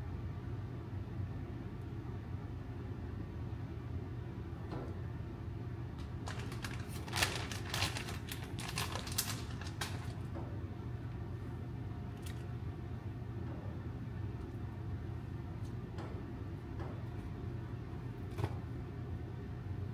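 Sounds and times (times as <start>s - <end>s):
steady low hum: 0.0s - 19.9s
crinkles and sharp clicks: 6.0s - 10.4s, 12.1s - 12.6s.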